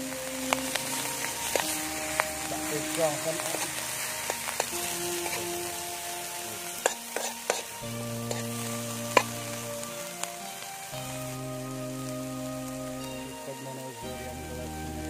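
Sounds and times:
ants sizzling in a wok: 0.0 - 15.0
metal spoon scraping a wok: 6.8 - 8.4.

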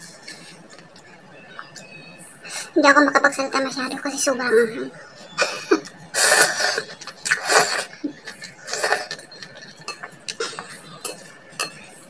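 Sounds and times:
person slurping food: 6.2 - 11.3.

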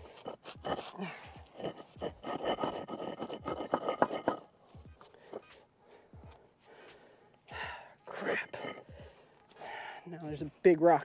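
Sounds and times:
pavers and gravel scraping by hand: 0.0 - 4.5.

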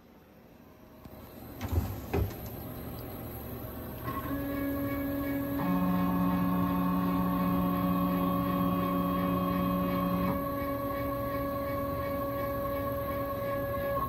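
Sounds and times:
cnc router motor whine: 3.7 - 14.0.

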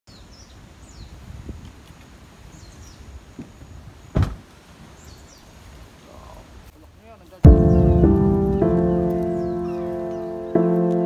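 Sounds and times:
sharp thump: 4.2 - 4.4, 7.5 - 10.4
steady low rumble: 7.5 - 10.5
falling bird chirps: 7.5 - 10.7.

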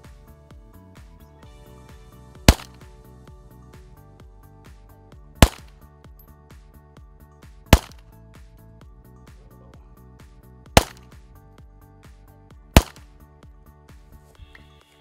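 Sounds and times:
background music with ticking beat: 0.0 - 15.0
bullets striking wooden board: 2.5 - 2.8, 5.4 - 5.7, 7.7 - 8.0, 10.8 - 11.2, 12.8 - 13.1
pistol shots: 2.5 - 2.8, 5.4 - 5.7, 7.7 - 8.0, 10.8 - 11.0, 12.8 - 13.0.

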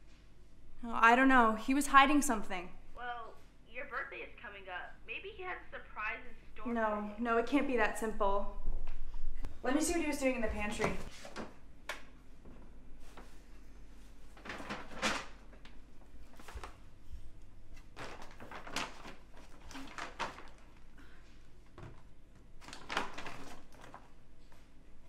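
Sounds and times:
paper bags rustling: 14.0 - 21.0, 21.6 - 24.7.

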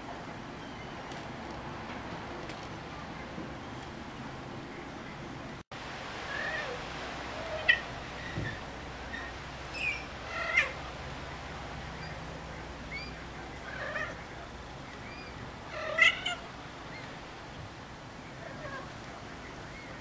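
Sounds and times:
kittens mewing: 9.8 - 10.9, 12.9 - 14.3, 15.7 - 16.4.

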